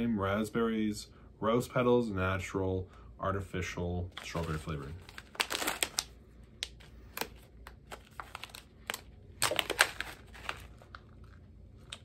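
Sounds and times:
foil pouch crinkling: 0:04.2 - 0:12.0.

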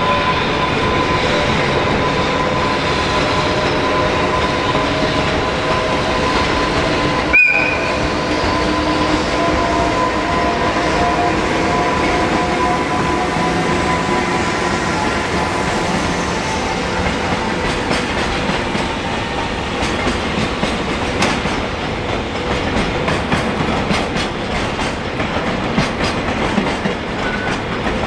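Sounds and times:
freight train rumbling past: 0:00.0 - 0:28.0
locomotive whistle horn blast: 0:07.3 - 0:13.6.

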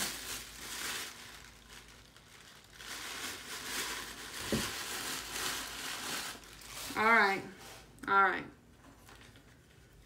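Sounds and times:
packaging crinkling and rustling: 0:00.0 - 0:07.3, 0:08.9 - 0:10.0.

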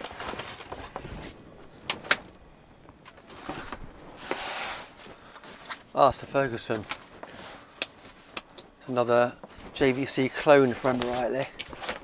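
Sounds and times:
cardboard and paper rustling: 0:00.0 - 0:02.2, 0:03.0 - 0:08.4, 0:09.4 - 0:12.0
scraping rustle: 0:00.0 - 0:02.3, 0:03.1 - 0:12.0.

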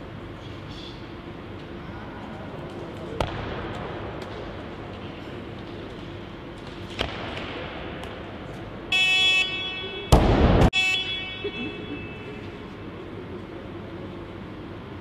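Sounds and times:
electronic signal tone: 0:10.8 - 0:12.4.

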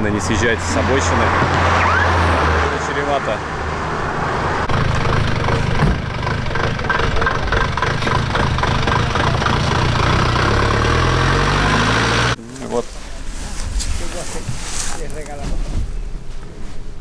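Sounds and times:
vehicle engine running loudly: 0:04.6 - 0:12.4.

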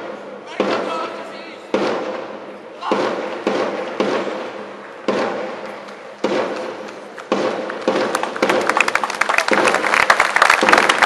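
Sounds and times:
echoing drum beats: 0:00.0 - 0:11.0
applause: 0:06.9 - 0:11.0.

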